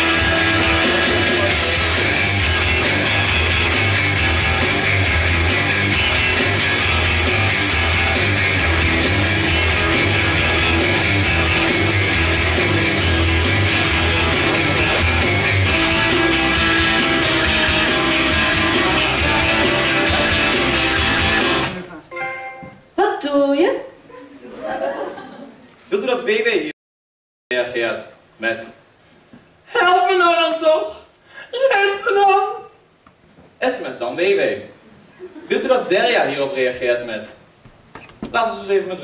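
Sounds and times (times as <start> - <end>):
rock music with guitar: 0.0 - 21.8.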